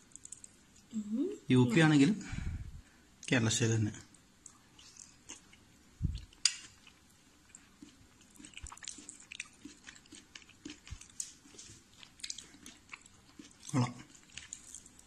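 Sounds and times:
person chewing food: 4.4 - 15.0.

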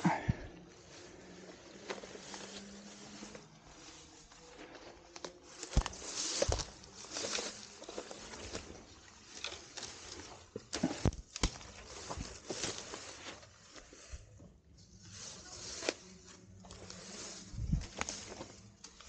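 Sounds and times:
leaves and grass rustling: 0.0 - 19.0
twigs snapping underfoot: 4.5 - 13.9, 15.7 - 19.0.

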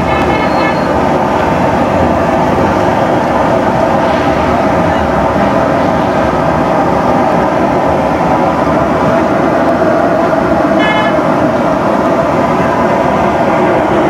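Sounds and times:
traffic noise: 0.0 - 14.0
vehicle horn toot: 10.8 - 11.2.

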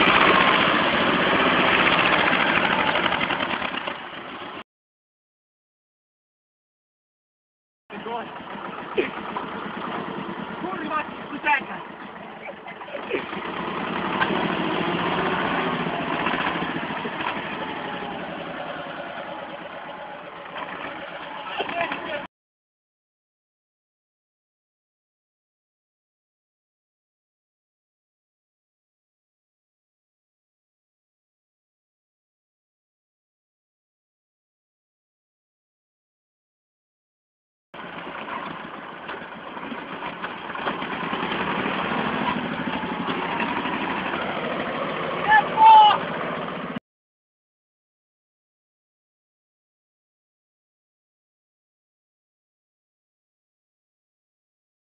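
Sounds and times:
tractor diesel engine clattering: 0.0 - 4.6, 7.9 - 22.3, 37.8 - 46.8.

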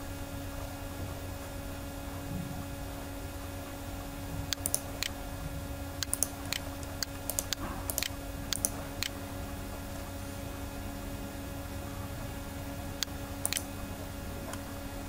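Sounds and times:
low electrical hum: 0.0 - 15.0
computer mouse clicks: 4.5 - 5.2, 6.0 - 9.2, 13.0 - 13.7.

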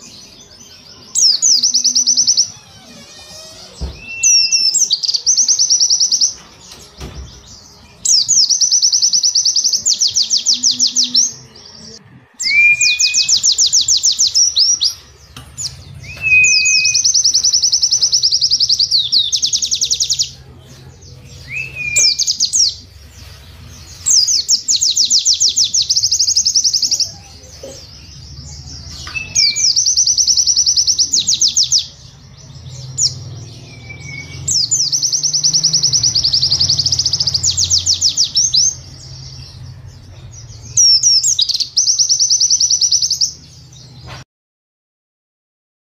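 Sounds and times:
bird song with fast high notes: 0.0 - 44.2.

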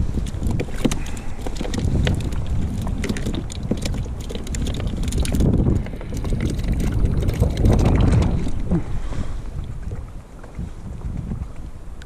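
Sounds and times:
wind buffeting microphone: 0.0 - 12.0
small clicks and knocks of gear: 0.1 - 8.6.

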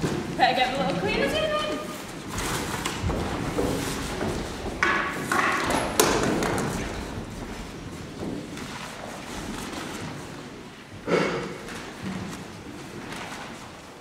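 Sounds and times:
footsteps on wooden stage: 0.0 - 14.0
sharp knocks: 3.0 - 7.0.

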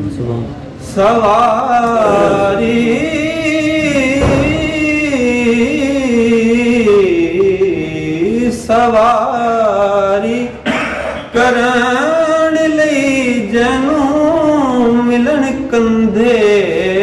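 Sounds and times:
man singing solo: 1.7 - 8.2.

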